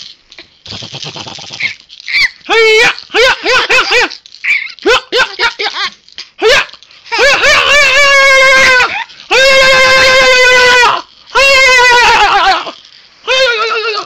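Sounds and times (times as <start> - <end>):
high-pitched squealing yelps: 0.6 - 14.0
long steady wail: 6.4 - 14.0.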